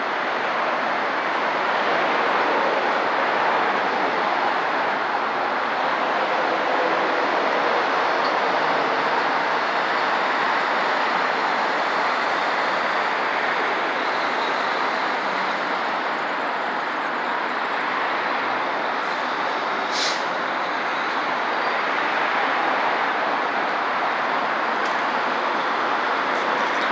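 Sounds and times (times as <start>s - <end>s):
heavy traffic roar: 0.0s - 26.9s
short hiss: 19.8s - 20.3s.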